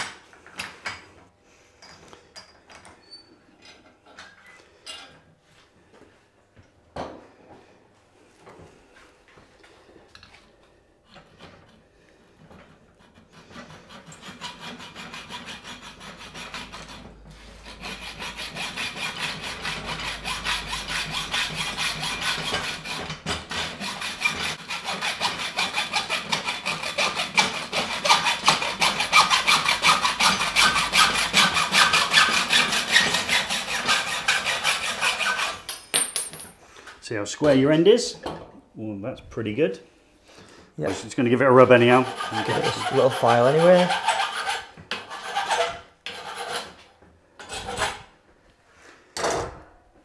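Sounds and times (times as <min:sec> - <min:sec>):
hacksaw cutting steel pipe: 0:13.0 - 0:35.8, 0:41.8 - 0:46.8.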